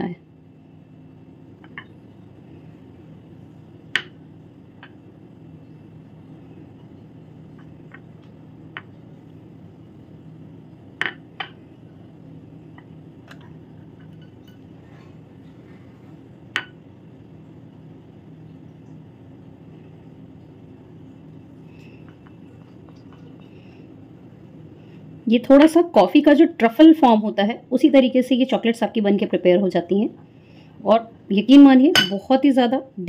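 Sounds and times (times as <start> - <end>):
steady low hum: 0.0 - 33.0
spatula clinking against glass bowl: 32.0 - 32.2.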